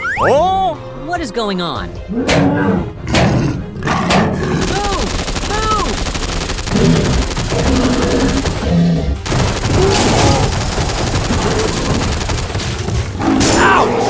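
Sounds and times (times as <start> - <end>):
machine-gun fire: 4.6 - 13.4.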